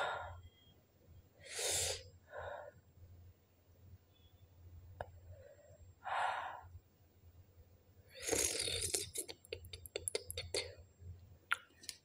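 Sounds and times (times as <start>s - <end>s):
woman breathing hard: 0.0s - 0.6s.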